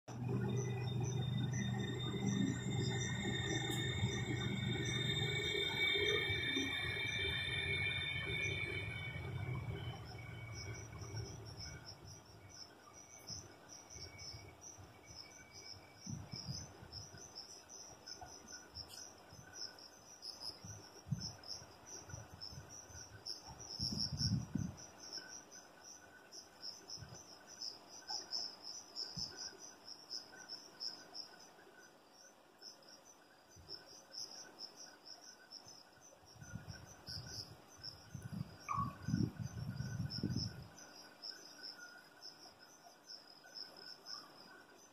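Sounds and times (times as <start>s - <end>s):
electric train rumble: 0.1s - 12.6s, 38.1s - 40.7s
crickets chirping: 0.1s - 44.9s.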